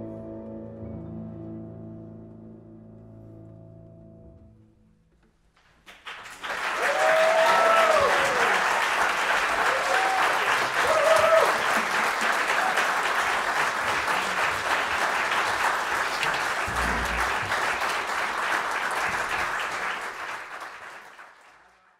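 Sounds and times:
audience applauding: 5.8 - 21.9
low thump: 16.7 - 17.7.

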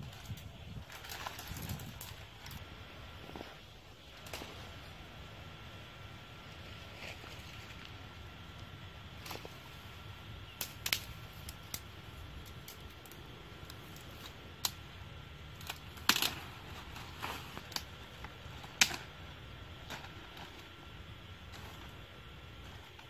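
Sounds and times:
steady low hiss: 0.0 - 23.0
twigs snapping in brush: 10.5 - 19.2.

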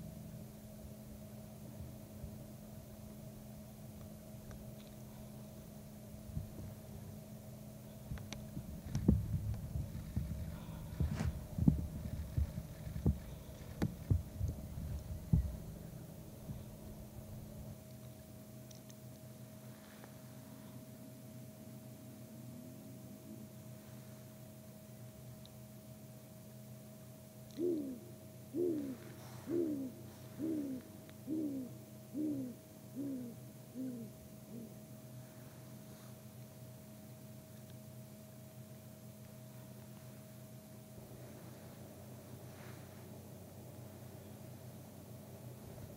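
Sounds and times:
faint electrical hum: 0.0 - 45.9
owl deep hoots: 10.0 - 11.2, 27.5 - 36.1.

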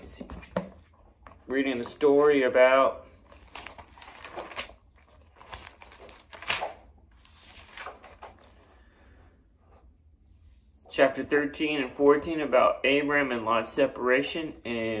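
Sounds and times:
book pages turning: 3.2 - 8.7.

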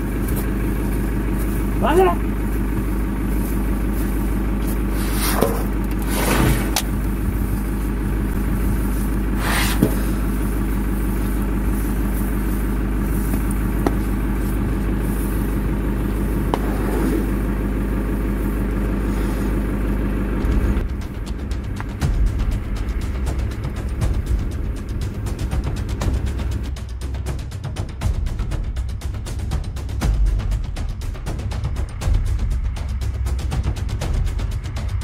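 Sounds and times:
jeep engine idling: 0.0 - 35.0
scrapes and knocks: 5.0 - 7.0.

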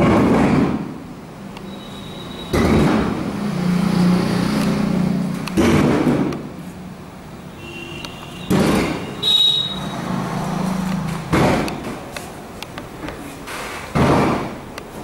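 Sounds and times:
loud knocks: 0.0 - 1.0, 2.5 - 3.2, 5.6 - 6.5, 8.5 - 9.2, 11.1 - 12.0, 13.9 - 14.7.

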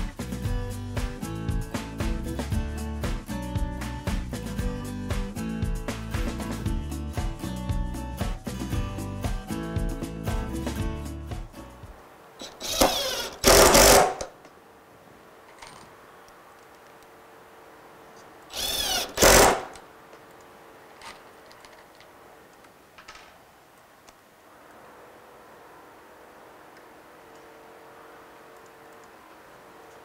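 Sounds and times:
impact driver whine and hammering: 12.4 - 14.3, 18.5 - 19.8.

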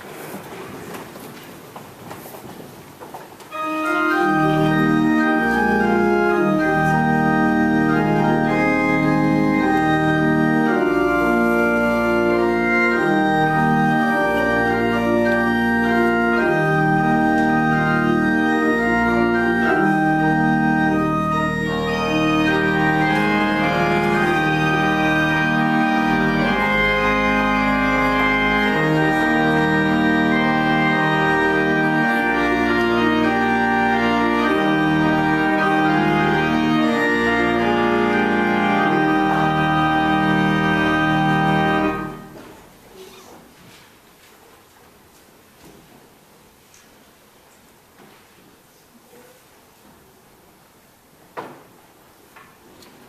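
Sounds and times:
pipe organ chords: 3.5 - 42.8.

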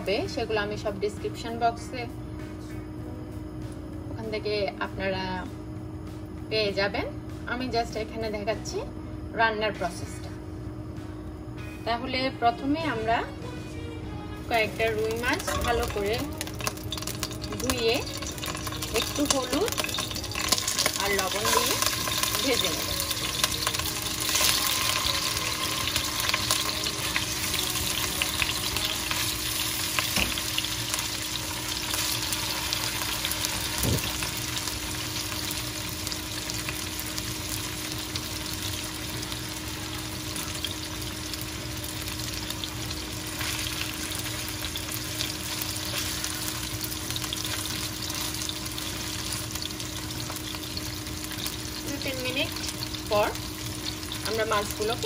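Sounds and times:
fish sizzling in hot oil: 14.5 - 55.0.

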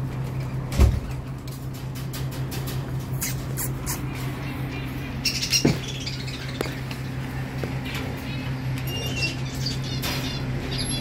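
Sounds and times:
parakeet chirping and squawking: 3.0 - 11.0.

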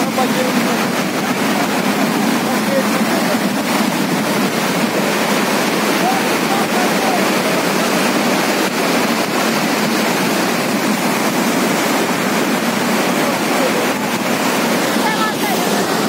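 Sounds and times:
floodwater rushing: 0.0 - 16.0.

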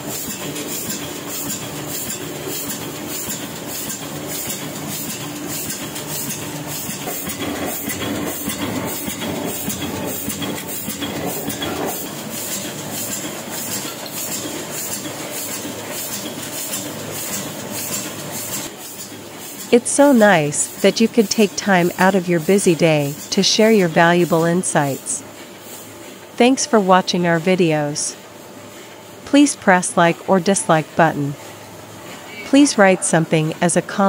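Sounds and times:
printing press clattering: 0.0 - 25.0.

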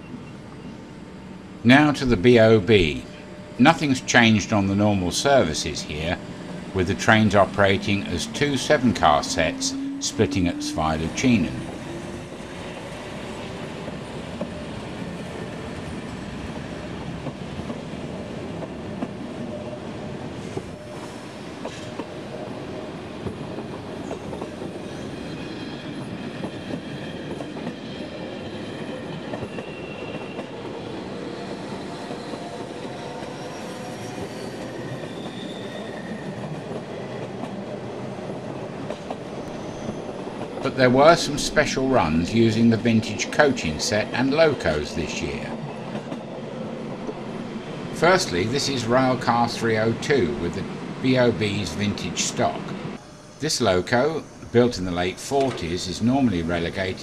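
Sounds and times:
thin wheel squeals: 33.3 - 36.4
train wheels clicking over rail joints: 55.3 - 55.9.

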